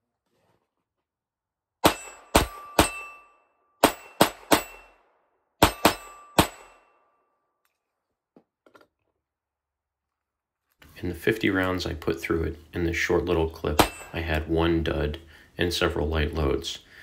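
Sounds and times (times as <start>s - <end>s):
pistol shots: 1.8s - 3.2s, 3.8s - 6.9s, 13.8s - 14.2s
metallic ringing tone: 2.0s - 5.0s.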